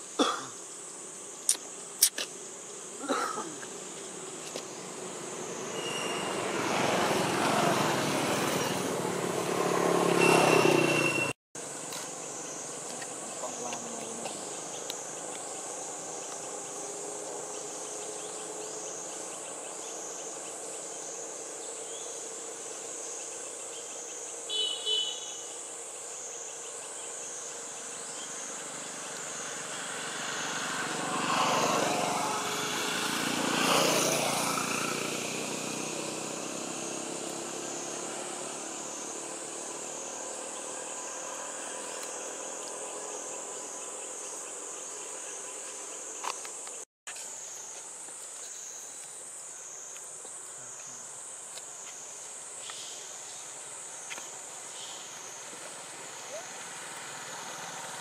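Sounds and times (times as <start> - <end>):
high insect chorus: 0.0 - 58.0
vehicle passing: 4.8 - 11.3, 28.6 - 44.0, 55.1 - 58.0.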